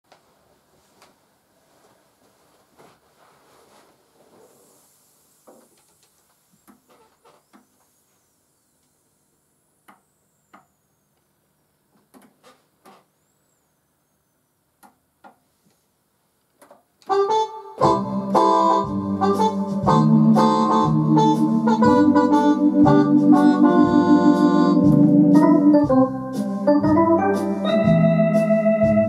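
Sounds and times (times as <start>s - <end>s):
organ playing fox trot: 17.1s - 29.0s.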